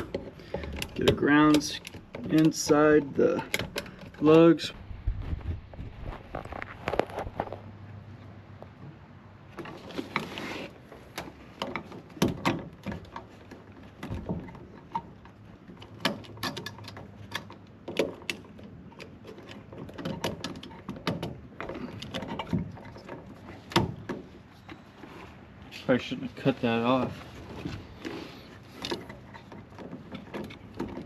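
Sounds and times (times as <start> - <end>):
clicks and scrapes of wiring work: 0.0 - 4.7, 9.5 - 31.0.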